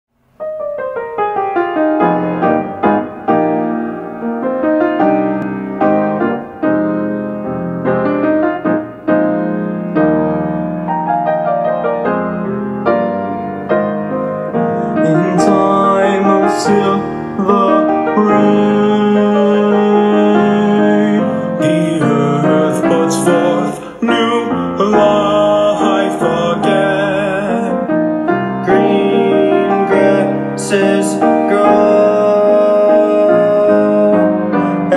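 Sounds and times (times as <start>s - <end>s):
piano playing: 0.1s - 34.9s
choir singing: 15.0s - 27.7s, 28.6s - 34.9s.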